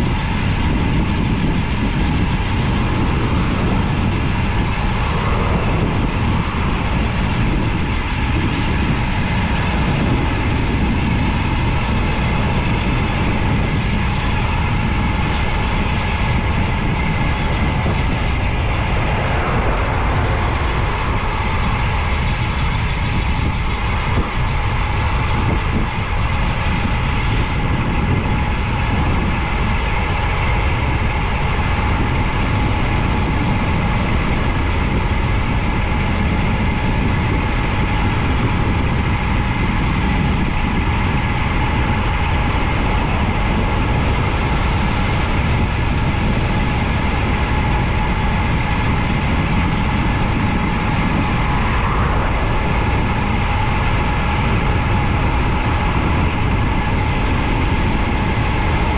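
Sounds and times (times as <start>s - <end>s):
wind rushing over microphone: 0.0s - 58.9s
steady tones: 2.2s - 9.8s, 13.8s - 24.1s, 50.0s - 57.2s.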